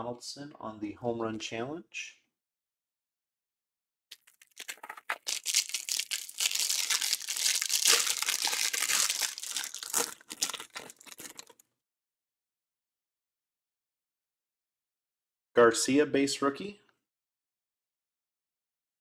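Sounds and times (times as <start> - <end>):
plastic wrapper crinkling and tearing: 4.1 - 11.6.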